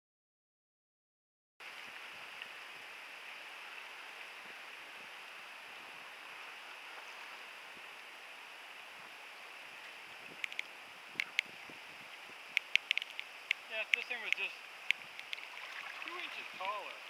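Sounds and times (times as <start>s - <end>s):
water hissing around kayak: 1.6s - 17.0s
sharp click: 12.5s - 15.4s.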